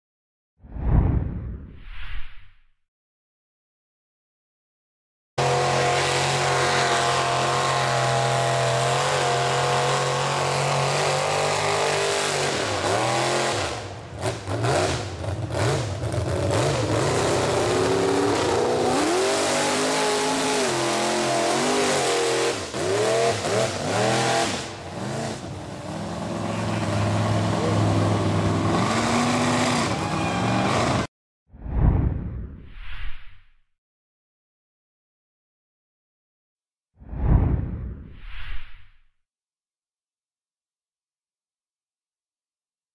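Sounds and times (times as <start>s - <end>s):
truck engine revving: 5.4s - 31.1s.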